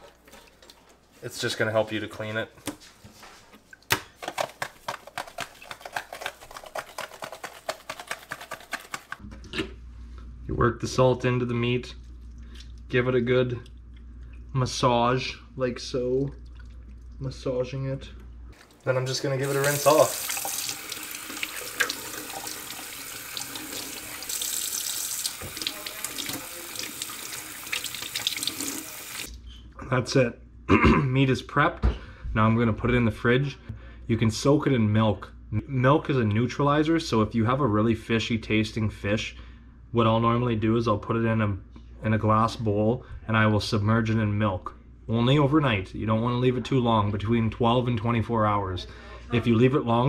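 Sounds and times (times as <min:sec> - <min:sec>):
hands rinsing fish: 0:03.6 - 0:09.2, 0:18.6 - 0:29.3
small wet splats: 0:03.6 - 0:09.2
salt shaker rattling ticks: 0:04.9 - 0:09.2
faucet running into metal sink: 0:18.9 - 0:29.3.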